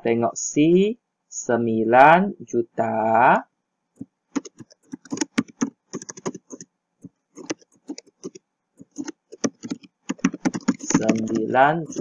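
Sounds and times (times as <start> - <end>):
keyboard typing: 4.0 - 12.0.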